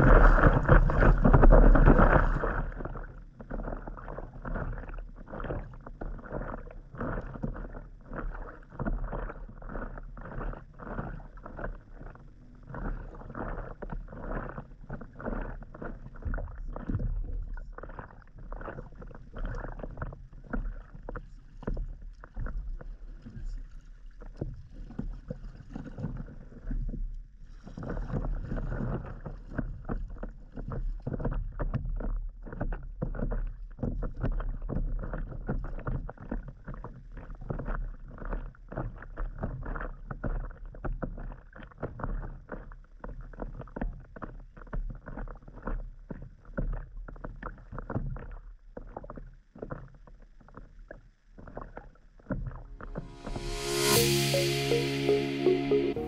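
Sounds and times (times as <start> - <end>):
wind rumble on microphone: 0.0 - 3.0
small waves lapping against hull: 0.0 - 52.7.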